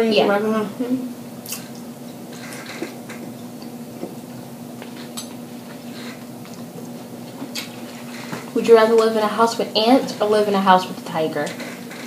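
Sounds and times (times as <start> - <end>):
faint steady hum: 0.0 - 12.0
chewing: 4.8 - 8.5.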